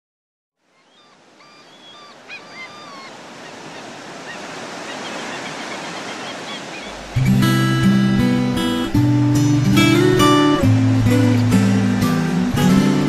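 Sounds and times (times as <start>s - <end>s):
birds calling: 0.6s - 7.6s
ocean surf washing: 0.7s - 13.0s.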